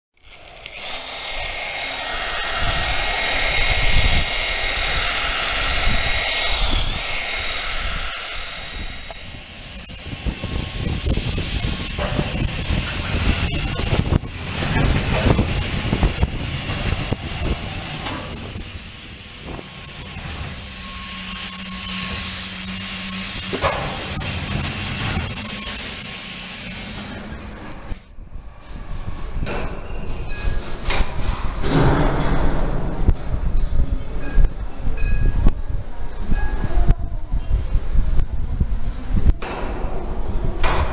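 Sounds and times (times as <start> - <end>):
orbital sander whining: 0.4 - 28.0.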